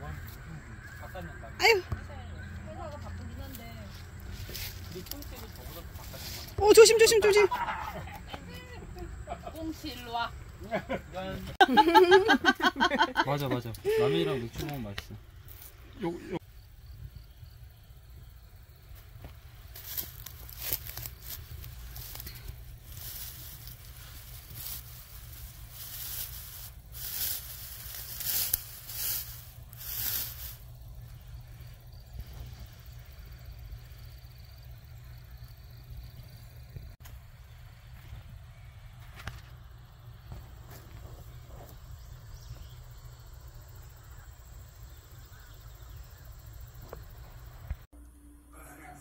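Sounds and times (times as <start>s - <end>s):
faint chirps: 0.0s - 7.0s
dry grass rustling: 2.6s - 8.8s, 18.1s - 36.5s.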